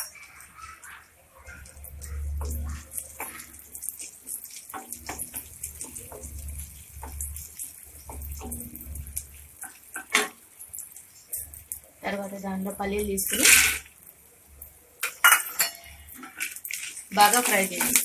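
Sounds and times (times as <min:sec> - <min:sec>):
spatula stirring: 0:00.0 - 0:12.0
leaves crackling in hot oil: 0:00.0 - 0:18.0.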